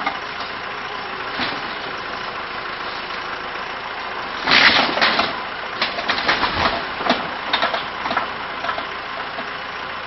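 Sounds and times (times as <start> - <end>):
backhoe engine running: 0.0 - 10.0
metal and wood crunching: 4.3 - 8.9.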